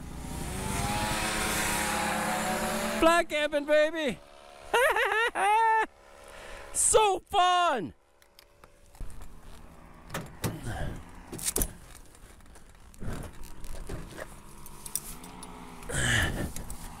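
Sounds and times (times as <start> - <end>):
engine droning: 0.0 - 7.0, 7.9 - 17.0.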